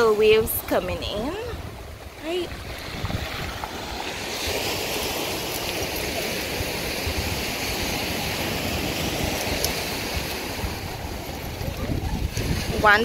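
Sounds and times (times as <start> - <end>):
small waves hissing on shore: 0.0 - 13.0.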